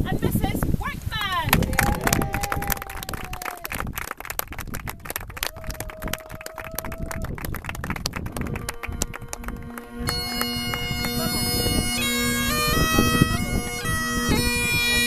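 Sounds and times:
people clapping: 1.2 - 12.6
long steady held tones: 7.2 - 15.0.

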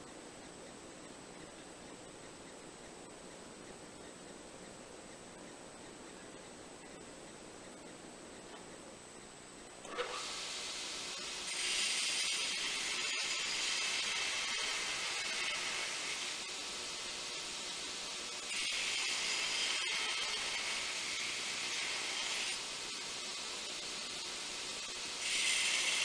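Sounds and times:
belt grinder running: 9.9 - 16.8, 18.4 - 23.2, 23.8 - 26.0
grinding hiss on steel blade: 10.0 - 26.0.

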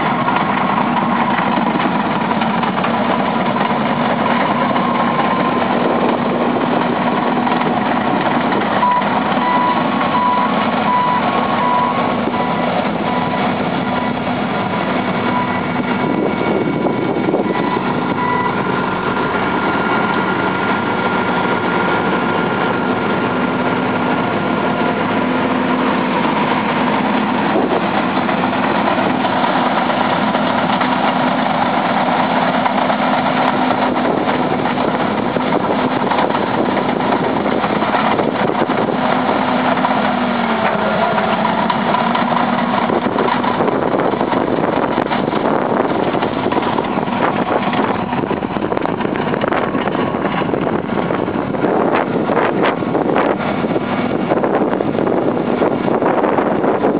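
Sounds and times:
heavy diesel engines running: 0.0 - 56.9
reversing alarm beeping: 4.5 - 5.8, 8.8 - 14.3, 15.2 - 19.0.

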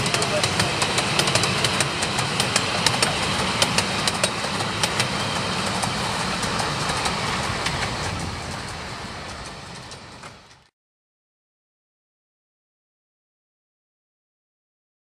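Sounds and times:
train rumble: 0.0 - 10.7
train wheels clicking over rail joints: 0.0 - 10.7.

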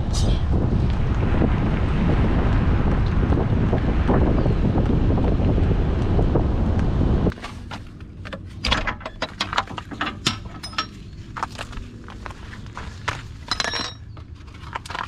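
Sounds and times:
wind buffeting microphone: 0.0 - 7.4.

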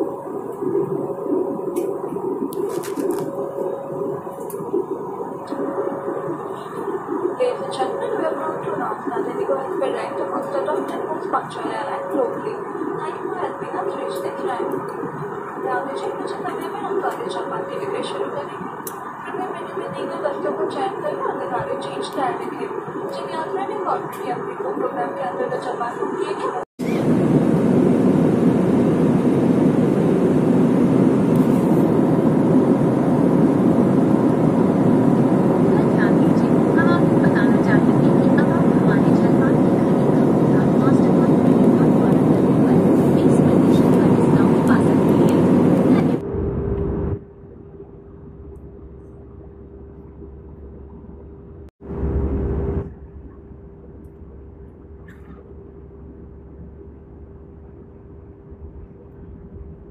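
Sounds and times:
faint steady hum: 0.0 - 59.9
jet cabin engine and airflow noise: 0.0 - 59.9.

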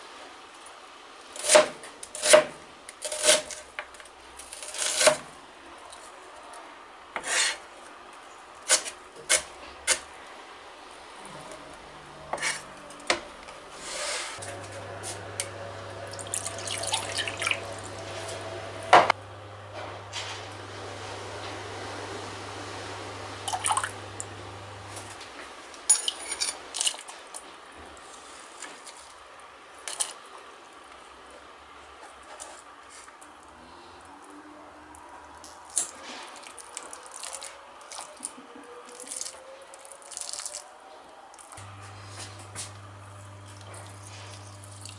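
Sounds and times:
water pouring into glass bowl: 16.1 - 17.8, 23.5 - 24.0.

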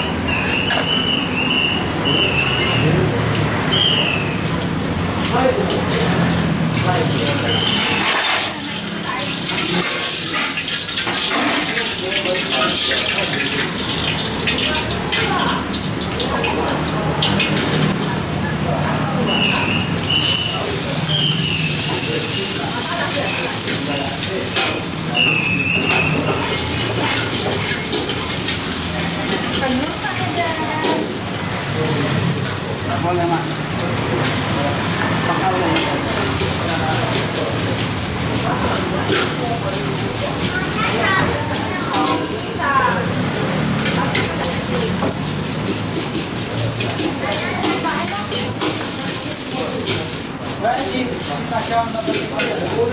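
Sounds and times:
egg sizzling in a wok: 3.7 - 52.9
metal ladle scraping wok: 7.4 - 11.8
metal ladle scraping a wok: 7.6 - 8.7.

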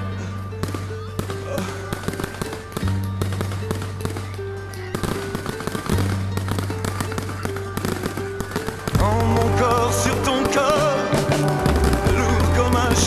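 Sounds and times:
fireworks bursting and crackling: 0.6 - 13.0
music with bass notes: 8.9 - 13.0.

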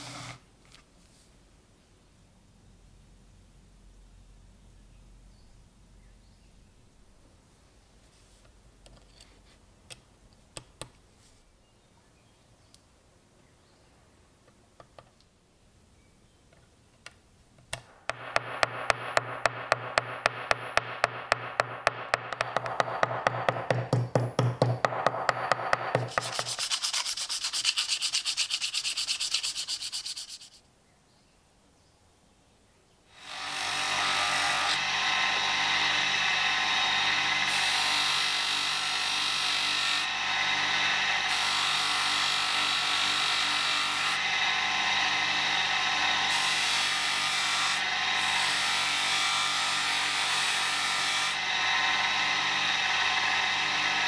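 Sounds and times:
hammer tapping steel blade: 18.1 - 26.6
blade rubbing on polishing wheel: 25.4 - 30.6
polishing wheel motor humming: 51.4 - 54.0.

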